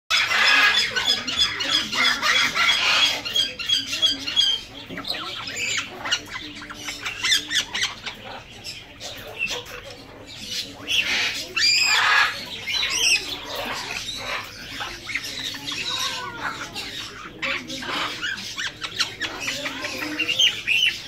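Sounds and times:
parrots squawking: 0:00.1 - 0:21.0.

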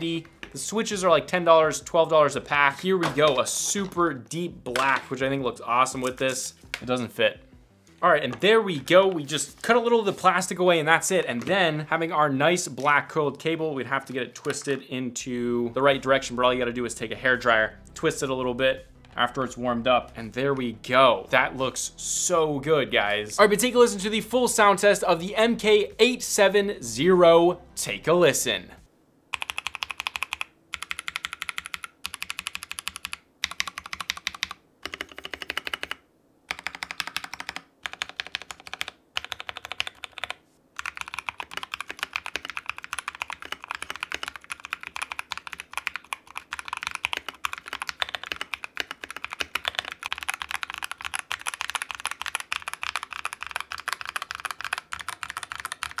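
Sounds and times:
typing on mechanical keyboard: 0:29.3 - 0:56.0.

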